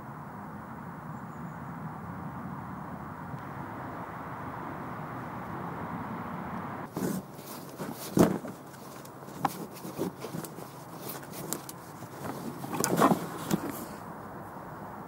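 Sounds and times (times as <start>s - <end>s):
canvas sheet rustling: 6.9s - 14.0s
knocks and scuffs: 6.9s - 14.0s
rope being handled: 6.9s - 14.0s.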